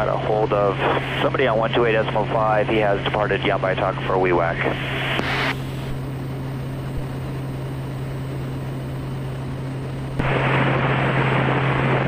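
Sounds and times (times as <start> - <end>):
radio hiss: 0.0 - 7.4
turboprop engine humming: 0.0 - 12.0.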